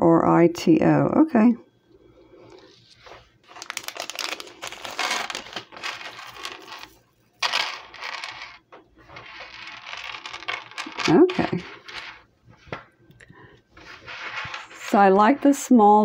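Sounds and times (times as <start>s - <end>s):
bead necklace clicking and clinking: 3.5s - 12.2s.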